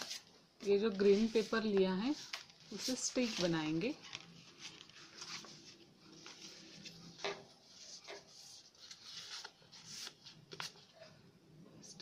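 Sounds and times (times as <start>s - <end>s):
paper rustling: 0.0s - 11.0s.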